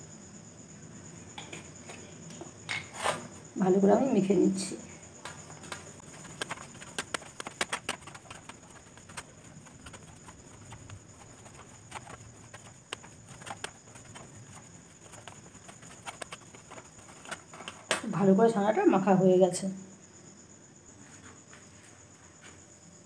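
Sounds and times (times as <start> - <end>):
hand kneading on metal plate: 5.3 - 18.0.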